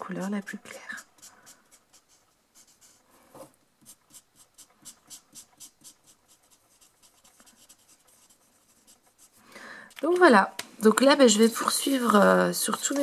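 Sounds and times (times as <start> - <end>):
marker scratching on card: 0.8 - 3.0, 3.8 - 10.2.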